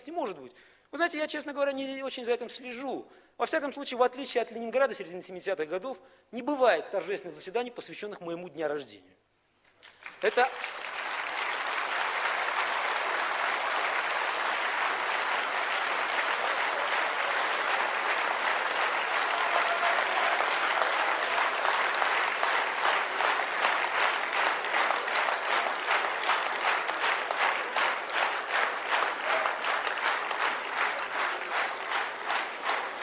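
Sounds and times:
audience clapping in unison: 0:09.7 - 0:33.0.

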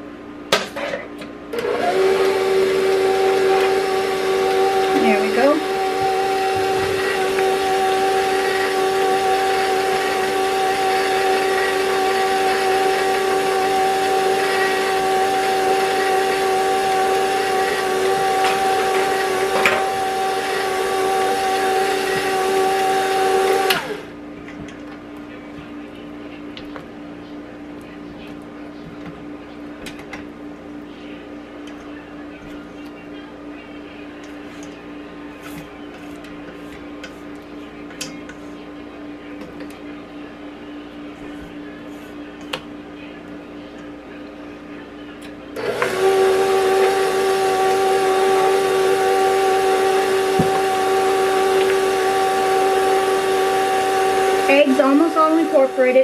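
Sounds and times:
stand mixer humming: 0:01.5 - 0:24.2, 0:45.5 - 0:56.0.

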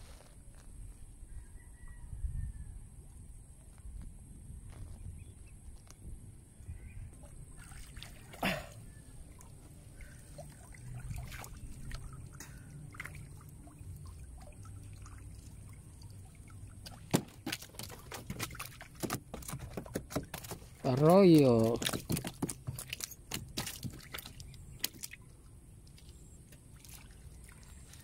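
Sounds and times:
river water splashing: 0:07.5 - 0:28.0.

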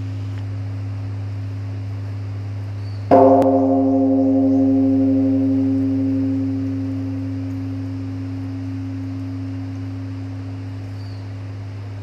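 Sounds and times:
wooden log striking bell: 0:03.1 - 0:11.4
temple bell humming: 0:03.1 - 0:12.0.

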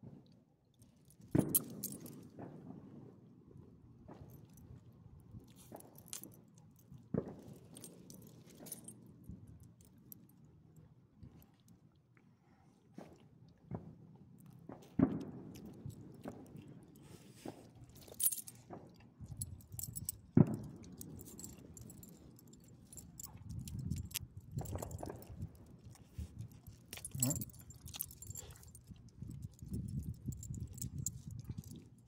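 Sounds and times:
dog collar tags jingling: 0:01.2 - 0:02.3, 0:05.5 - 0:10.3, 0:17.7 - 0:32.0.

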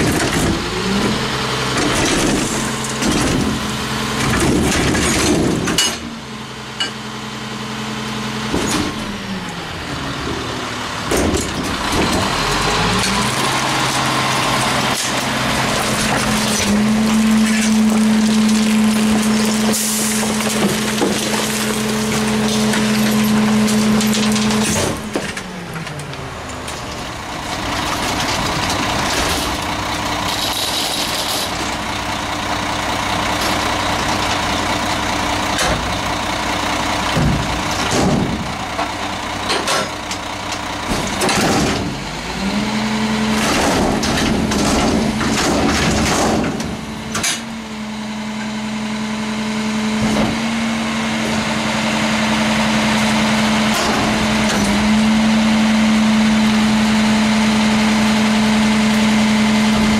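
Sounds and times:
trash cart knocking and banging: 0:00.0 - 0:06.1, 0:11.0 - 0:25.5, 0:37.0 - 0:42.0, 0:43.3 - 0:47.6
diesel truck engine: 0:00.0 - 0:59.9.

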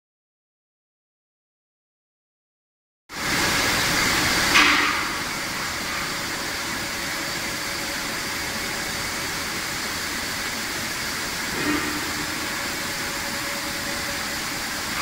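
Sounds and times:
machine mechanical drone with hiss: 0:03.2 - 0:15.0.

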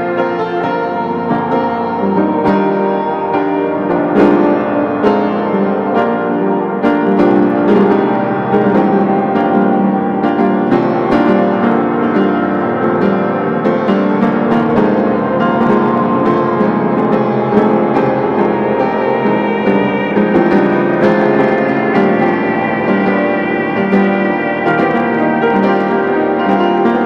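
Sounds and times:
piano music: 0:00.0 - 0:27.0.

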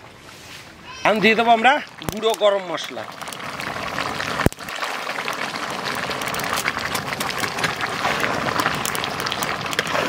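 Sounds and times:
curry bubbling at a boil: 0:01.0 - 0:10.0
crackle of spattering: 0:01.8 - 0:10.0.

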